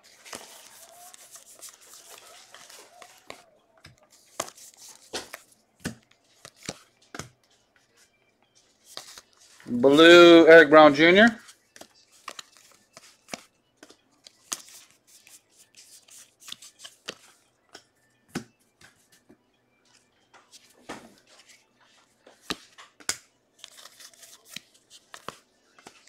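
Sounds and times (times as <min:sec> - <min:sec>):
trading cards rustling and clicking: 0:00.0 - 0:19.3, 0:19.9 - 0:26.0
cards tapping onto stack: 0:00.3 - 0:07.4, 0:11.8 - 0:15.4, 0:16.4 - 0:19.0, 0:22.3 - 0:26.0.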